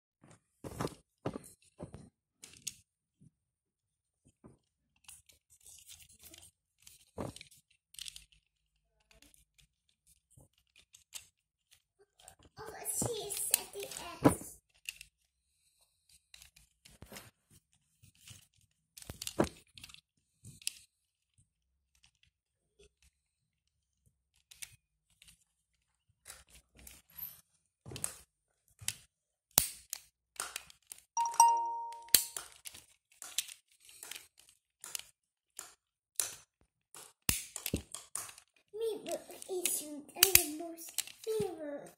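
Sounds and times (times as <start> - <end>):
plastic toy parts clicking: 2.4 - 2.9, 5.0 - 12.4, 13.0 - 15.3, 16.1 - 17.0, 18.1 - 20.9, 21.9 - 23.1, 24.3 - 25.5, 28.9 - 41.5.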